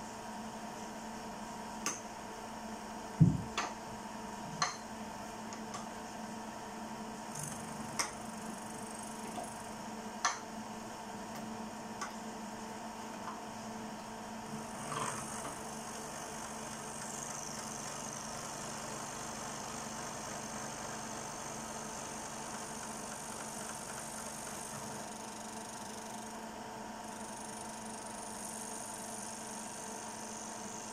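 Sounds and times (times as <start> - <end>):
milling spindle humming: 7.1 - 30.9.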